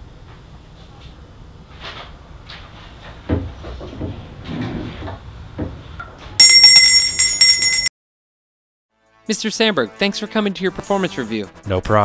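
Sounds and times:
desk service bell ringing: 0:06.4 - 0:07.9.

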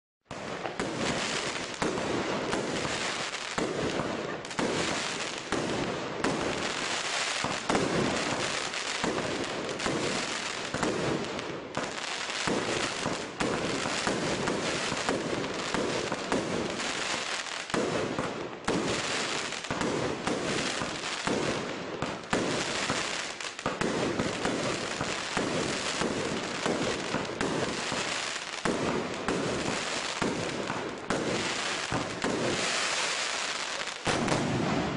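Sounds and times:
fireworks crackling: 0:00.3 - 0:34.9
firework pops: 0:33.3 - 0:34.9.

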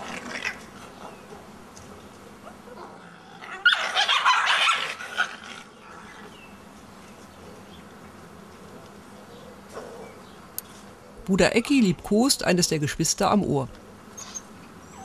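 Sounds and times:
wolf pups growling and snarling: 0:00.0 - 0:01.3, 0:02.6 - 0:06.4.

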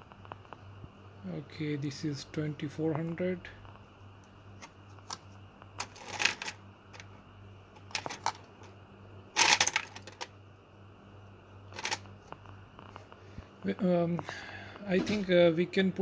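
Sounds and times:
faint low hum: 0:00.0 - 0:16.0
memory sticks clicking and clattering: 0:07.8 - 0:08.5, 0:09.4 - 0:10.3, 0:11.7 - 0:12.1.

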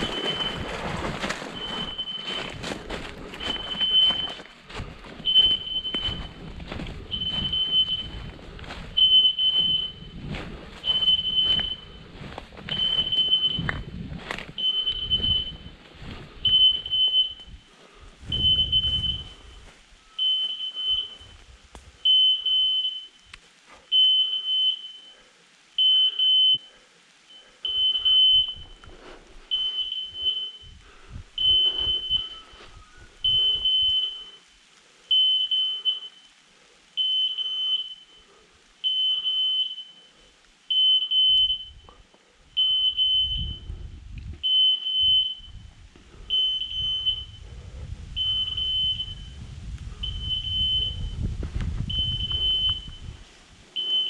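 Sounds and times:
low rumble: 0:00.0 - 0:19.8, 0:45.4 - 0:53.3.

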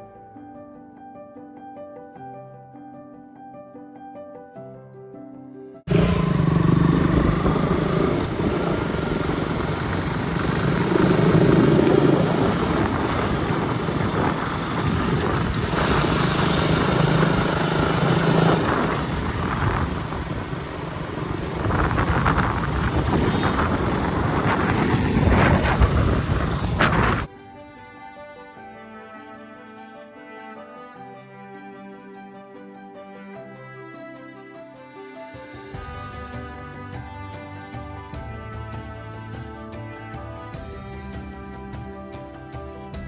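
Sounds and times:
motorcycle engine hum: 0:05.9 - 0:27.3
wind rush on microphone: 0:05.9 - 0:27.3.

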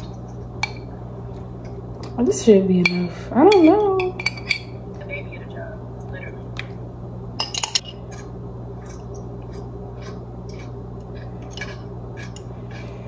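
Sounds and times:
steady low hum: 0:00.0 - 0:13.0
utensils clinking on dish: 0:02.8 - 0:04.8, 0:07.4 - 0:08.0.

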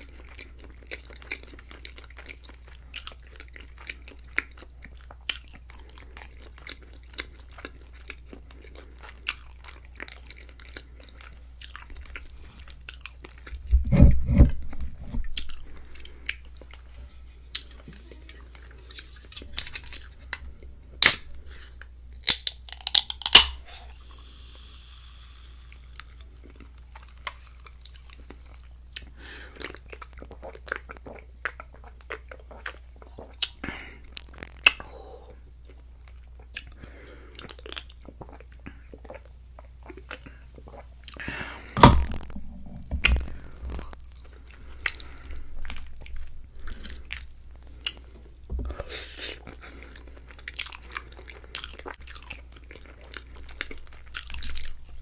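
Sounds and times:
chewing with wet smacks: 0:00.0 - 0:13.6, 0:26.1 - 0:34.8, 0:35.6 - 0:41.2, 0:49.4 - 0:55.0
soda can opening with fizz: 0:21.0 - 0:21.2.

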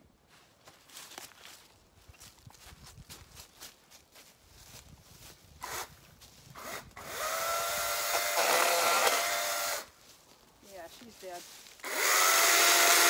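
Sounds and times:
footsteps in dry grass and leaves: 0:00.2 - 0:07.1, 0:07.7 - 0:12.8
electric chainsaw whining: 0:06.6 - 0:09.9, 0:11.8 - 0:13.0.

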